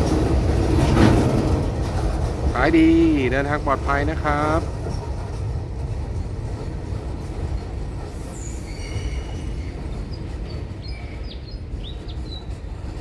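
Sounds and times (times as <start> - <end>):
freight train rumbling past: 0.0 - 13.0
wheels squealing on rails: 7.3 - 13.0.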